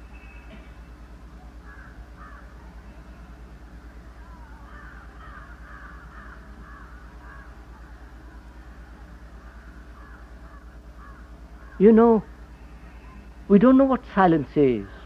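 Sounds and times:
low electrical hum: 0.0s - 15.0s
crows cawing: 1.6s - 3.2s, 4.2s - 7.9s, 9.3s - 13.4s.

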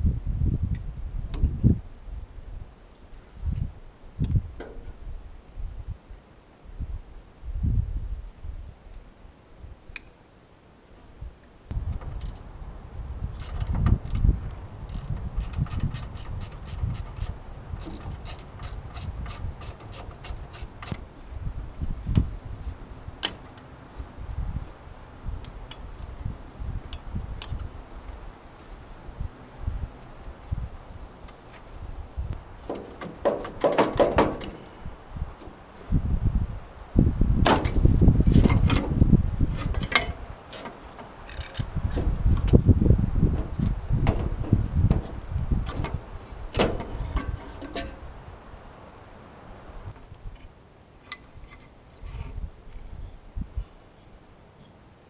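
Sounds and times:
wind rumble on microphone: 0.0s - 10.0s, 11.1s - 48.8s, 51.3s - 54.0s
ratchet wrench clicking: 13.4s - 21.0s.

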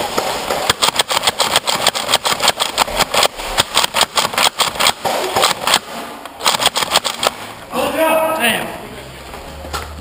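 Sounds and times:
foam darts firing rapidly: 0.0s - 7.4s.

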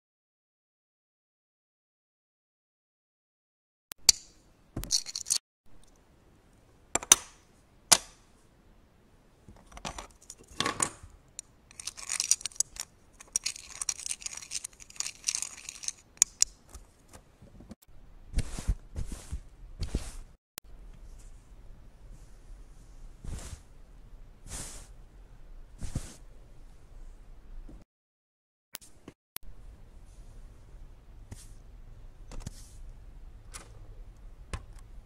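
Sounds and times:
plastic bricks clicking: 4.9s - 5.4s, 11.7s - 16.6s
plastic bricks rattling: 4.9s - 5.4s, 11.7s - 16.5s.

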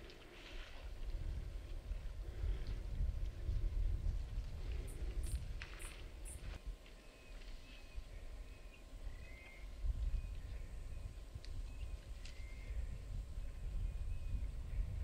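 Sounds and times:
bird chirps: 7.0s - 12.8s.

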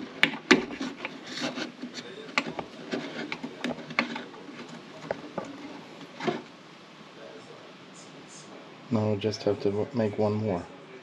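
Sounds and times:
handling clicks taps and rubbing: 0.0s - 6.4s.

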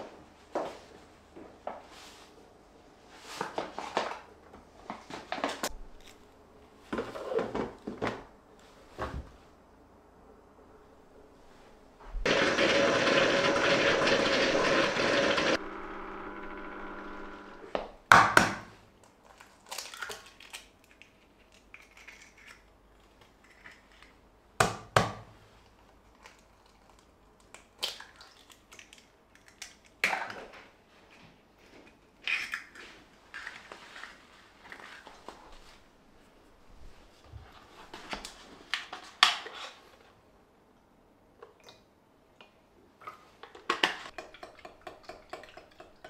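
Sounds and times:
kitchen appliance motor running: 12.3s - 17.7s.

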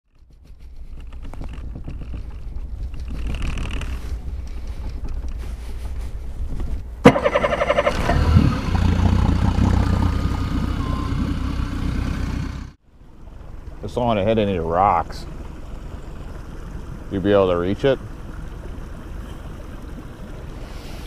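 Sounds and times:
low steady rumble: 0.3s - 21.0s
boat motor cranking: 7.0s - 12.5s
boat motor running: 7.0s - 21.0s.

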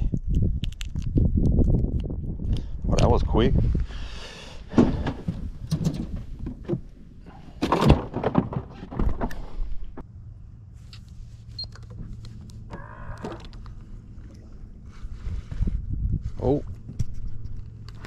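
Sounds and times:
knocks and clattering of gear: 4.7s - 10.1s.

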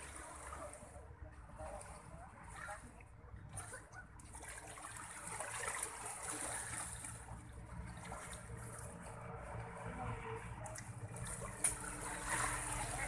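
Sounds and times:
small waves lapping: 0.0s - 13.0s.

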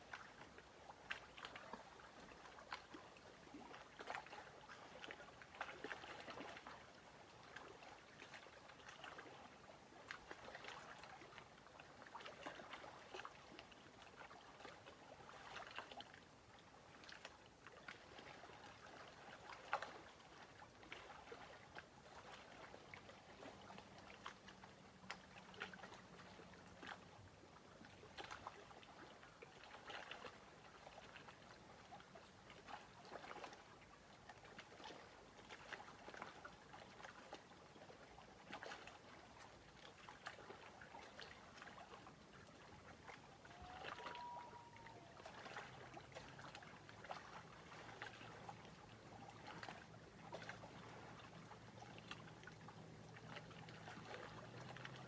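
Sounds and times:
water lapping at shore: 0.0s - 55.0s.

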